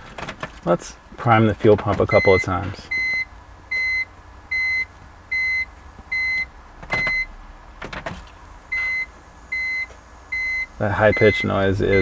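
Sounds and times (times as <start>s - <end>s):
dashboard warning chime beeping: 1.8s - 7.3s, 8.7s - 12.0s.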